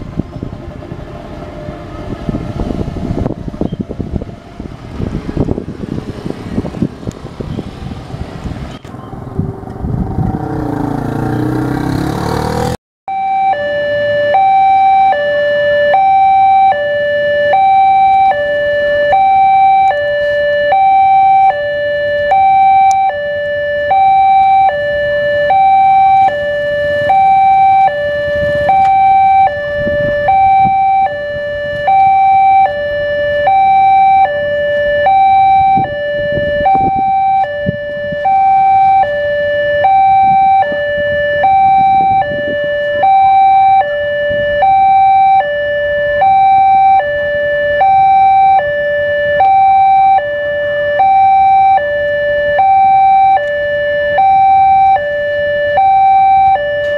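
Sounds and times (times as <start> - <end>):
level crossing two-tone alarm: 13.1 - 56.9.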